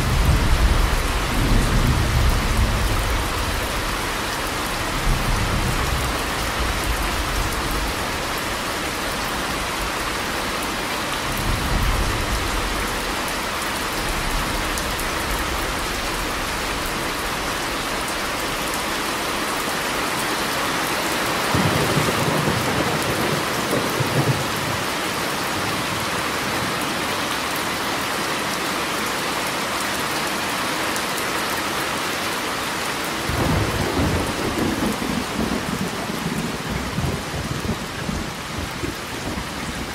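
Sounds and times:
heavy rain: 0:00.0 - 0:39.9.

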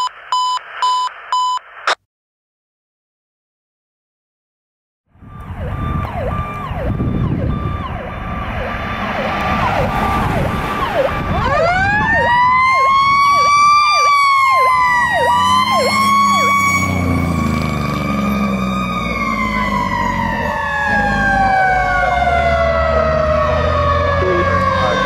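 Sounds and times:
fire engine siren yelping: 0:05.1 - 0:25.0
second siren wailing: 0:05.1 - 0:25.0
truck engine rumble: 0:05.1 - 0:25.0.

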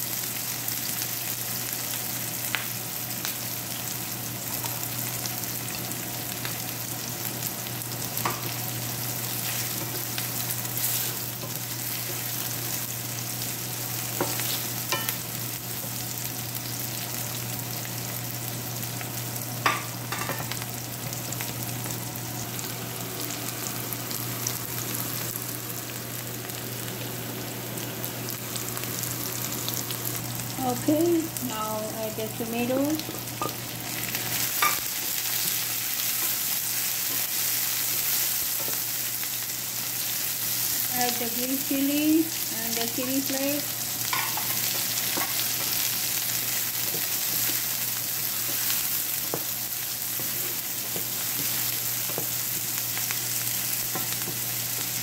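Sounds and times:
onions sizzling in oil: 0:00.0 - 0:55.0.

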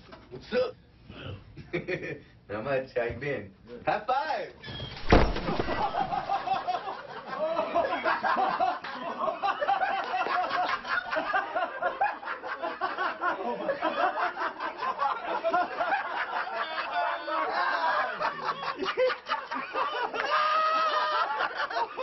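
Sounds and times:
men laughing: 0:05.3 - 0:22.0.

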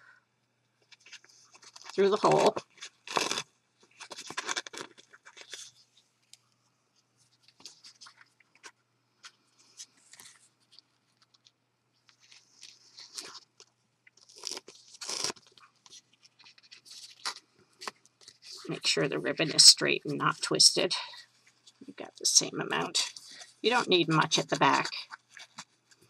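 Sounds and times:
paper and ribbon crackling: 0:00.9 - 0:06.0, 0:12.2 - 0:18.8.

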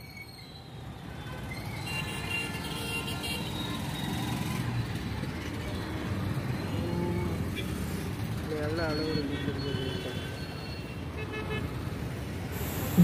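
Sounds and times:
road traffic rumble: 0:00.0 - 0:13.0.

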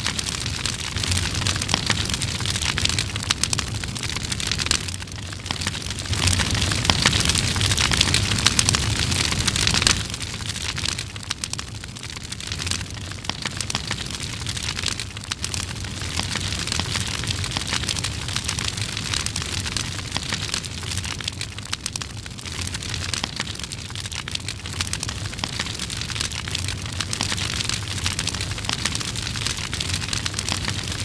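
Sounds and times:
wildfire crackling and roaring: 0:00.0 - 0:31.0.

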